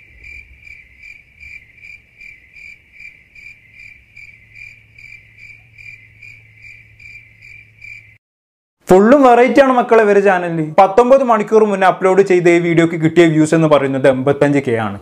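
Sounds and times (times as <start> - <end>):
cricket chirping: 0.0 - 8.2.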